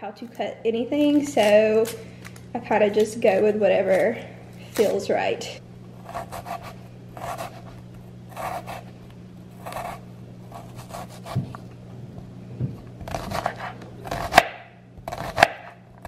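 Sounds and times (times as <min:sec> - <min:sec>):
steady low hum: 0:00.0 - 0:16.0
knife slicing on cutting board: 0:06.0 - 0:07.7, 0:08.3 - 0:08.9, 0:09.6 - 0:11.6, 0:13.0 - 0:15.7.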